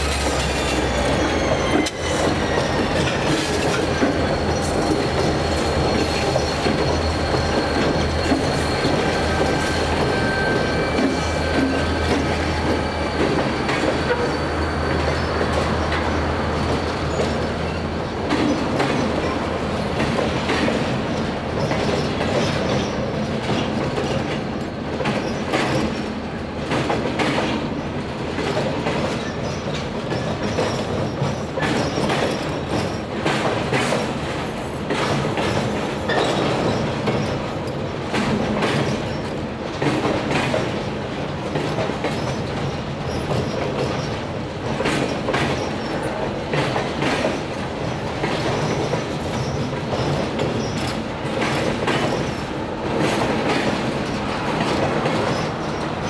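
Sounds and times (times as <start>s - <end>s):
high wheel squeal: 0.0s - 19.1s
diesel locomotive engine: 0.0s - 56.0s
wheels clacking on rails: 0.0s - 56.0s.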